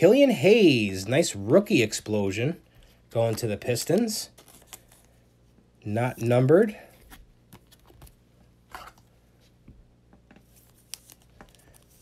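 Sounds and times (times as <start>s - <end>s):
trading cards rustling and ticking: 3.2s - 5.2s, 10.4s - 12.0s.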